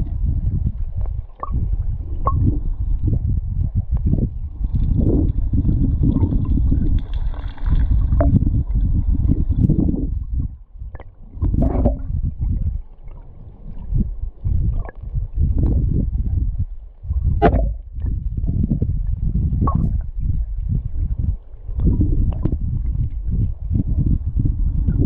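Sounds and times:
underwater river current rumbling: 0.0 - 25.0
sharp clicks and knocks: 17.4 - 18.0.

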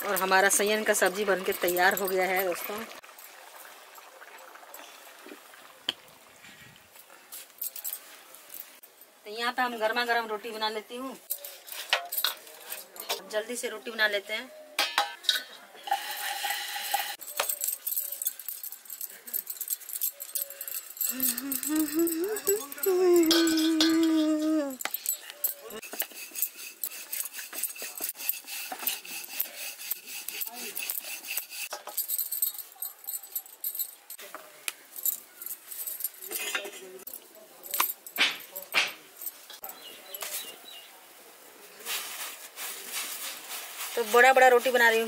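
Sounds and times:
bangles jingling: 0.0 - 2.9, 7.3 - 9.2, 11.2 - 13.2, 17.0 - 34.2, 34.8 - 40.4.

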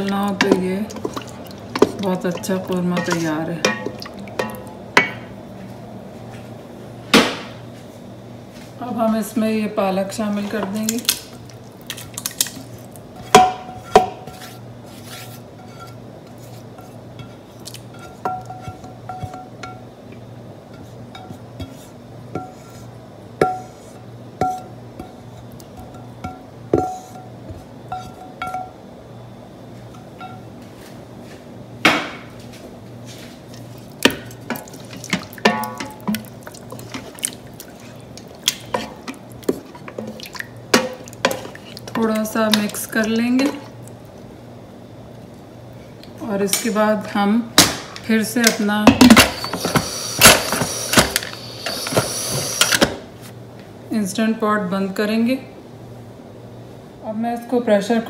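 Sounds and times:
spoon knocking metal pot: 1.8 - 5.3, 35.4 - 36.2
spatula scraping a pan: 14.2 - 17.0.

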